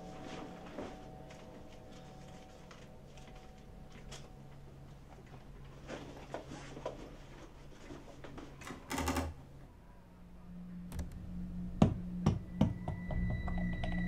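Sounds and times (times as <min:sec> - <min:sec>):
low steady drone: 0:09.8 - 0:14.0.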